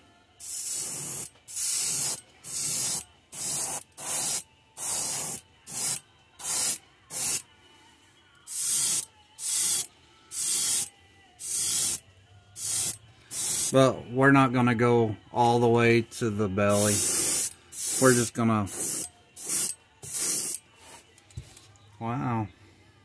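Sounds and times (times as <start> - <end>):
airbrush spraying hiss: 0.4 - 7.4, 8.5 - 12.0, 12.6 - 13.8, 16.7 - 20.6.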